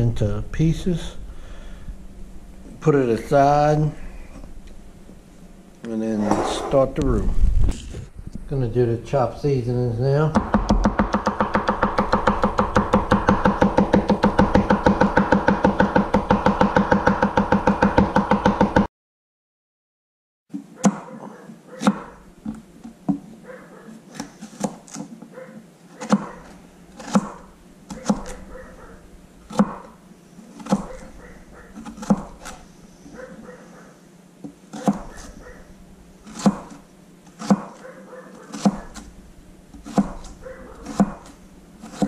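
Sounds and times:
knife chopping celery: 10.4s - 18.8s, 26.0s - 28.6s, 29.5s - 29.9s, 30.5s - 32.6s, 34.7s - 35.6s, 36.2s - 39.1s, 39.7s - 42.0s
knife chopping on cutting board: 10.4s - 18.9s, 21.8s - 23.2s, 26.0s - 28.6s, 29.5s - 31.1s, 31.7s - 32.6s, 34.7s - 35.4s, 36.2s - 37.8s, 38.4s - 39.1s, 39.7s - 42.0s.

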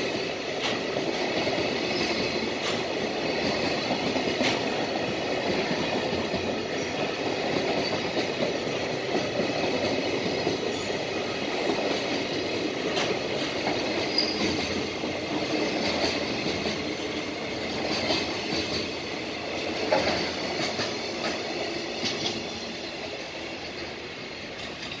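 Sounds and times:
train wheels clicking over rail joints: 0.0s - 25.0s
high wheel squeal: 14.1s - 14.6s.

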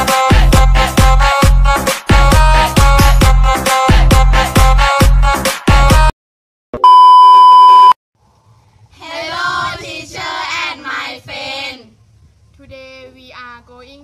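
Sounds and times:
loud electronic beep: 6.8s - 8.0s
children chanting in unison: 9.0s - 11.9s.

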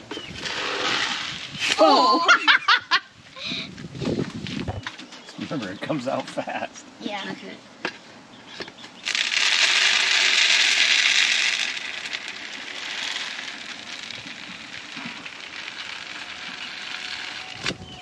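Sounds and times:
feed pouring out of barrel: 9.0s - 17.7s.

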